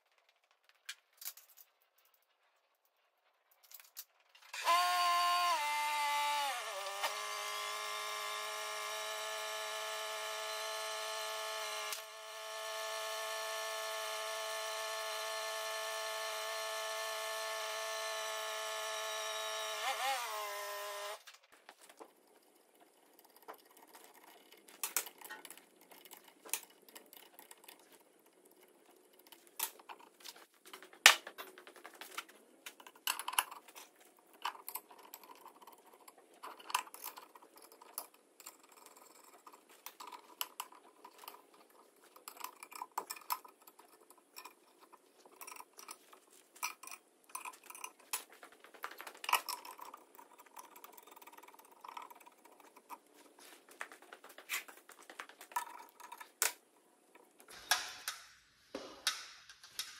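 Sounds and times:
machine motor whining: 4.5 - 21.3.

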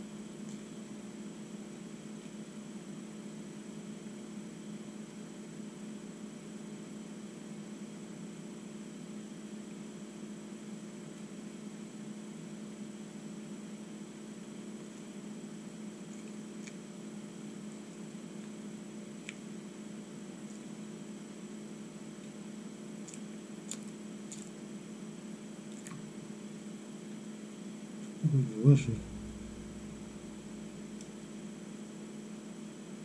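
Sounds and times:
low electrical hum: 0.0 - 33.0
man chewing breadstick: 16.0 - 16.9, 22.1 - 24.8.

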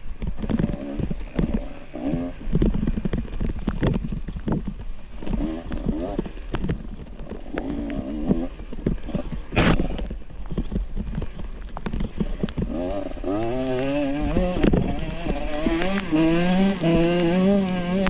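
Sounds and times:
dirt bike engine revving: 12.6 - 18.0.

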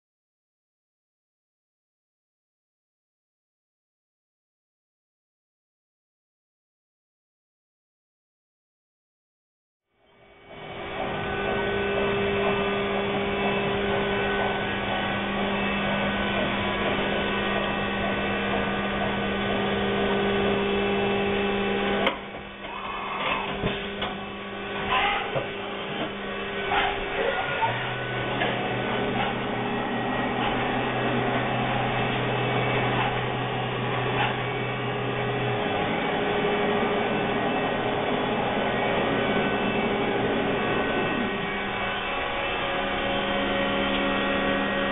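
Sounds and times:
machinery hum: 10.0 - 44.9
deeper hum: 10.2 - 44.9.

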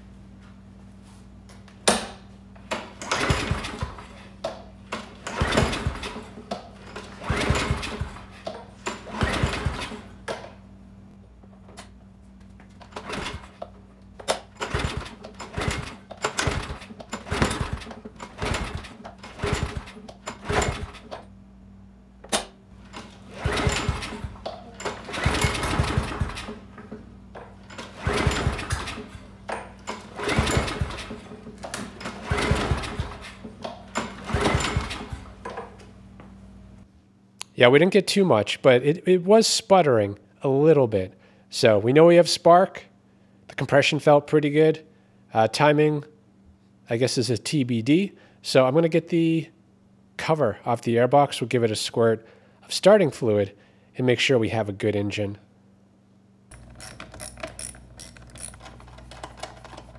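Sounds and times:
mower engine cranking: 1.8 - 10.6, 12.7 - 21.3, 22.3 - 35.9, 56.5 - 59.9
engine sputtering: 3.0 - 4.1, 5.0 - 10.2, 12.8 - 21.3, 22.8 - 35.5.

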